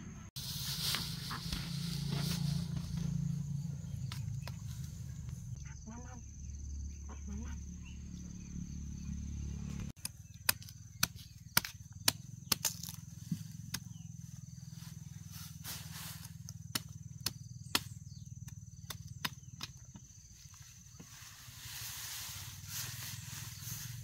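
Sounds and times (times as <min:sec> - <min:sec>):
machete chopping bananas: 0:10.0 - 0:14.0, 0:16.3 - 0:20.0.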